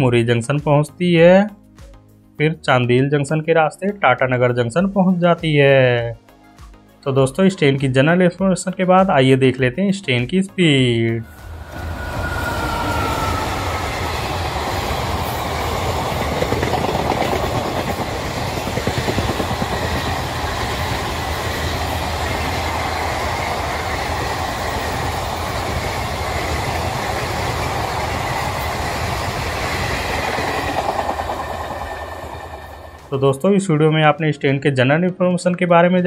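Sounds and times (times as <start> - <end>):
faint high tone: 11.2 - 14.1
train wheels on rails: 11.3 - 33.2.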